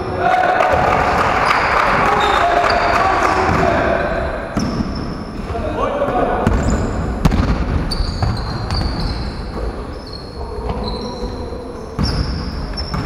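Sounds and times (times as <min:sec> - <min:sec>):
sneakers squeaking on wooden floor: 0:01.4 - 0:03.6, 0:04.5 - 0:05.6, 0:06.4 - 0:13.0
basketball thudding: 0:06.4 - 0:09.0.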